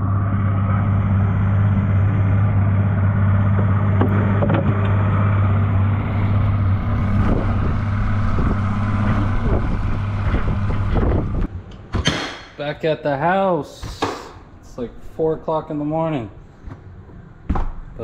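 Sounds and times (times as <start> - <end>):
water noise: 0.0 - 11.5
boat engine running: 0.0 - 11.6
wind: 4.4 - 12.6.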